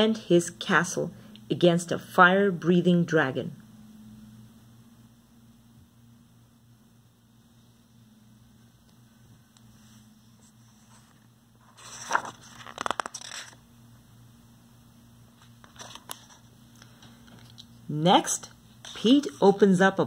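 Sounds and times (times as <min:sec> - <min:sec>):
faint low hum: 0:00.0 - 0:20.0
paper rustling and scraping: 0:09.8 - 0:13.6, 0:15.4 - 0:16.5.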